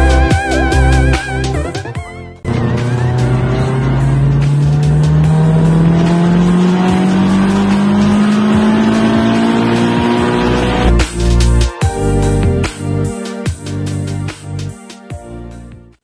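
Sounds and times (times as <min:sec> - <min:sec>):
car engine accelerating: 0:02.4 - 0:12.4.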